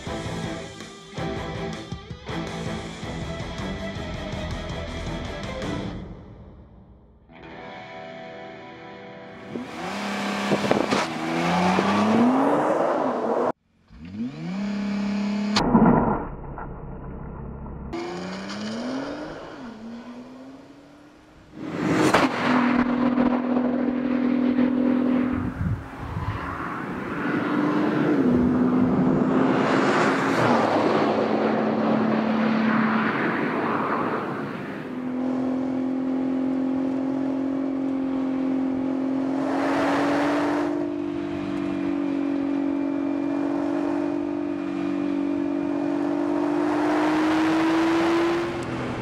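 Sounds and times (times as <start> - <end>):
car engine and exhaust: 9.3 - 49.0
tyre and wind noise: 10.0 - 12.2, 25.3 - 27.4.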